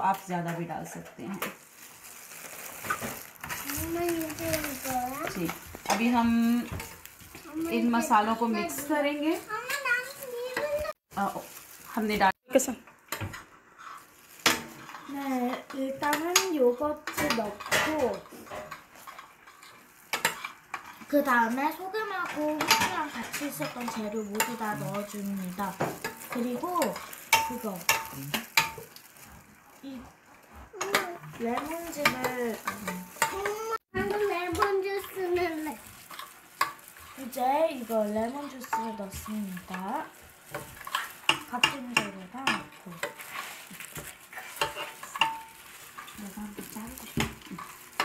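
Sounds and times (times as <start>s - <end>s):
spoon stirring in glass dish: 13.0s - 21.1s, 22.5s - 48.0s.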